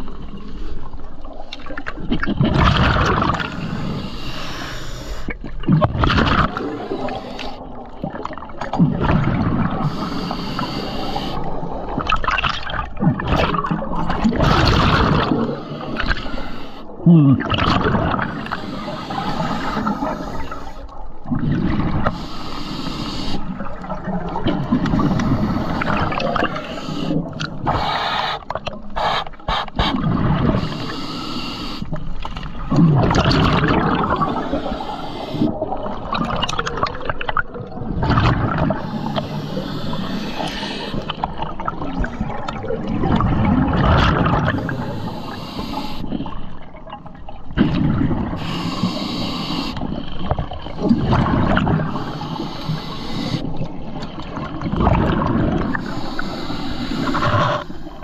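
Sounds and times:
exhaled bubbles rushing: 0.0s - 4.1s, 5.3s - 10.3s, 11.4s - 22.2s, 23.4s - 30.9s, 32.0s - 48.9s, 49.8s - 52.4s, 53.4s - 55.9s
diver breathing through regulator: 3.5s - 5.4s, 6.4s - 7.8s, 9.7s - 11.9s, 14.0s - 17.0s, 18.1s - 21.0s, 21.9s - 23.7s, 24.7s - 32.0s, 33.9s - 35.9s, 38.5s - 41.8s, 44.4s - 46.5s, 48.3s - 53.8s, 55.2s - 58.0s.

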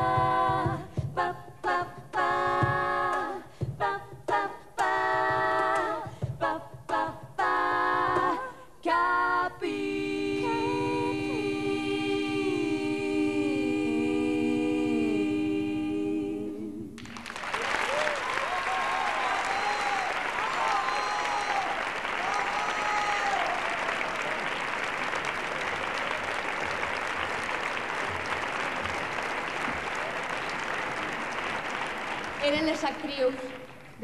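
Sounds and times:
women singing in close harmony: 0.0s - 17.0s
audience applause: 17.0s - 34.0s.

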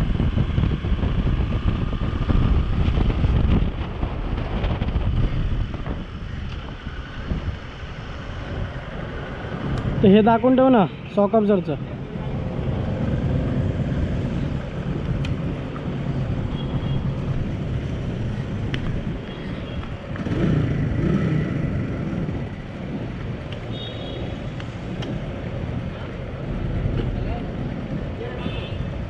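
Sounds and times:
vehicle engine rumbling: 0.0s - 29.0s.

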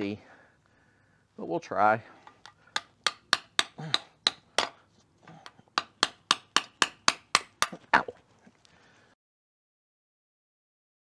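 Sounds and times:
hammer striking metal: 2.8s - 4.8s, 5.8s - 7.8s.

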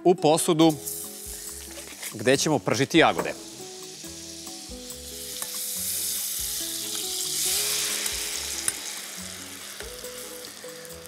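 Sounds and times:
butter sizzling in frying pan: 0.7s - 11.0s.

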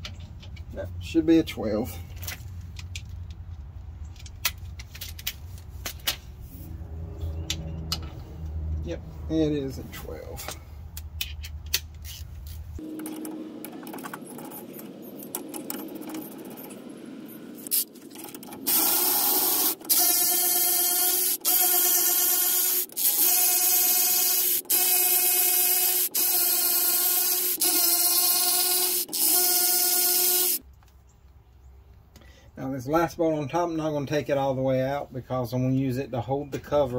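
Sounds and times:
electric ratchet motor whine: 17.6s - 30.6s.

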